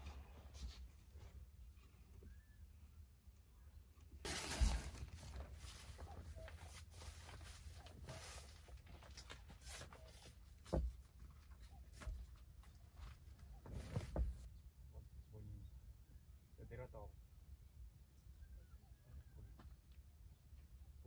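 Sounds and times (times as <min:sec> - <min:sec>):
rustling of things handled: 0:04.3 - 0:14.5.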